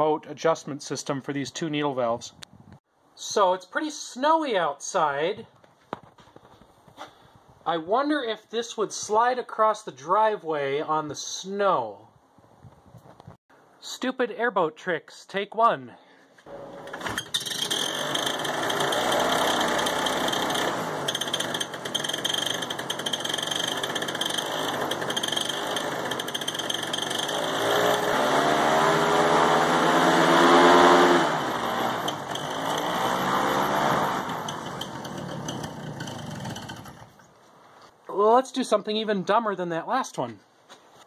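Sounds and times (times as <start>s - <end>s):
two-stroke engine revving: 16.6s - 37.2s.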